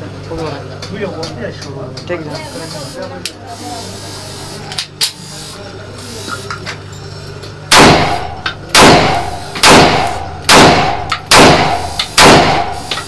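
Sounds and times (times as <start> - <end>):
pistol shots: 7.7 - 12.9.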